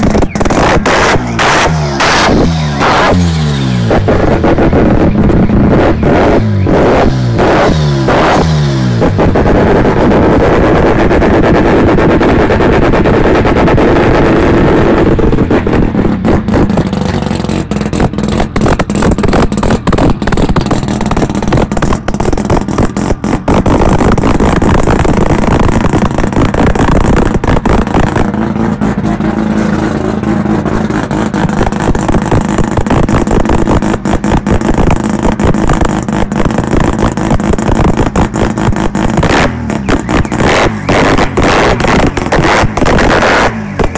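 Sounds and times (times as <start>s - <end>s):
rotary engine idling: 15.2s - 40.9s.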